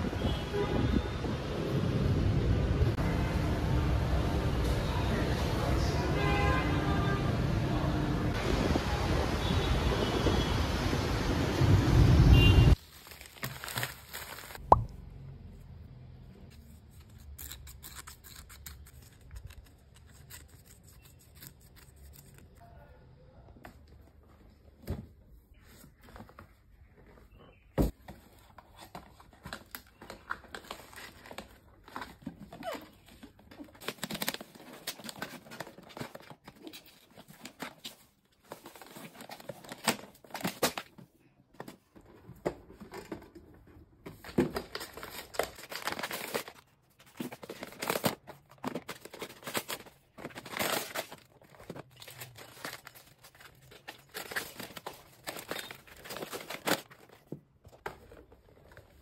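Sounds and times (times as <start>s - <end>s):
paper rustling and crinkling: 12.8s - 14.7s, 16.4s - 22.6s, 23.6s - 59.0s.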